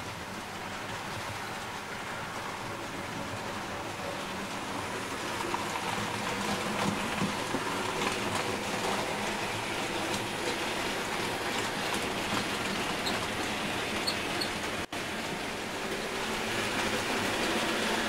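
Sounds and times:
model train wheels rattling on track: 0.0s - 18.0s.

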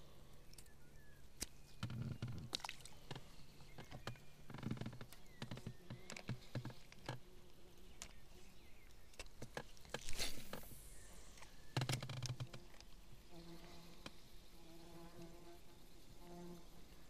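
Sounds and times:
short hiss: 10.0s - 11.6s.

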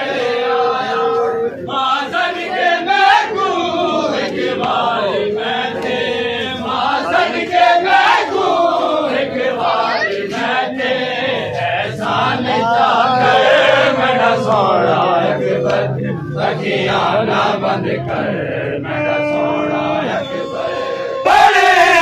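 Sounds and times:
crowd of men chanting: 0.0s - 22.0s.

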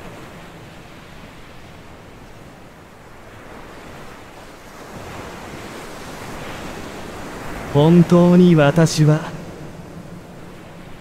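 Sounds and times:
ocean waves washing in: 0.0s - 11.0s.

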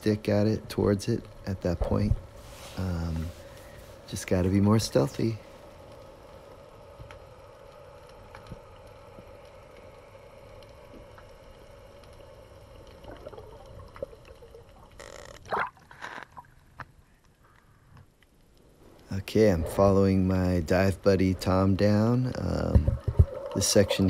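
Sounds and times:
underwater low hum: 0.7s - 24.0s
faint clicks: 5.9s - 19.1s
water splashing: 22.4s - 24.0s.

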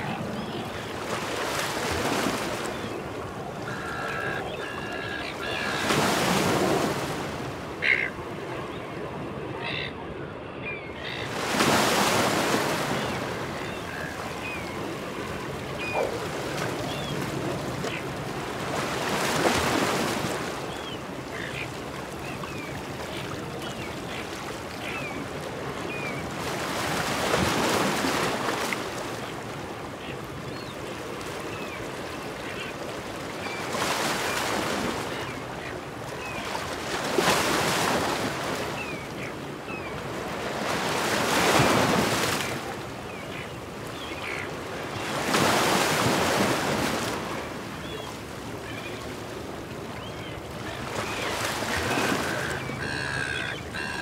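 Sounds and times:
seagulls calling: 0.0s - 7.2s, 7.8s - 18.1s, 33.4s - 46.5s, 49.9s - 54.0s
waves breaking on rocks: 11.3s - 20.6s, 25.3s - 29.1s, 40.0s - 43.4s, 44.9s - 47.6s.

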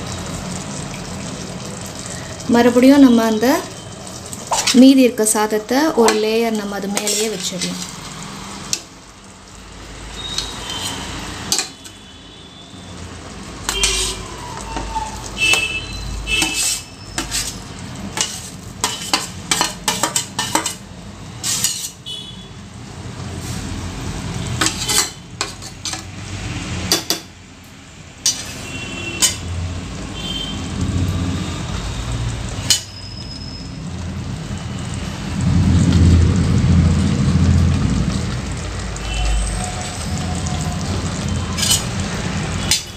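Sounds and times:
spoon clinking on metal pot: 13.7s - 14.2s, 18.2s - 20.8s, 24.6s - 26.0s
low rumble: 35.2s - 38.8s.

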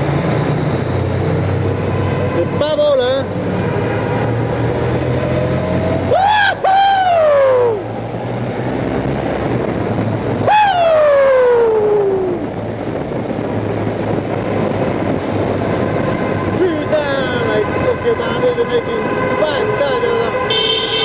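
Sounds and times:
motorcycle engine revving: 0.0s - 6.2s.

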